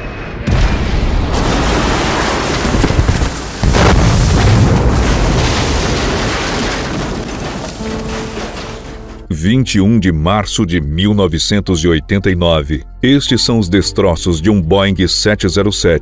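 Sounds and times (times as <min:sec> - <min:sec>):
explosion rumbling: 0:00.4 - 0:09.4.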